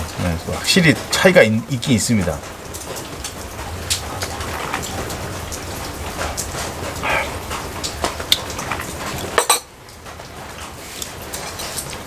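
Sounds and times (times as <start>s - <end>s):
rain falling and dripping: 0.0s - 12.0s.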